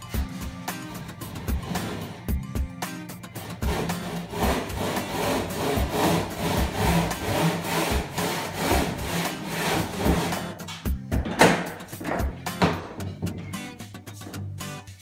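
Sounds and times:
handsaw cutting: 0.2 - 2.3, 3.4 - 10.6.

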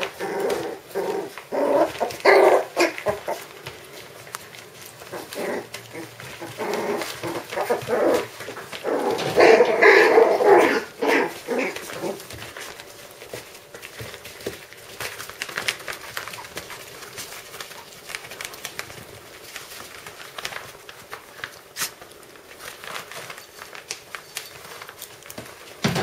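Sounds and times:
puppy grunts and squeaks: 0.0 - 3.5, 5.0 - 12.3
paws scrabbling on fabric: 0.0 - 26.0.

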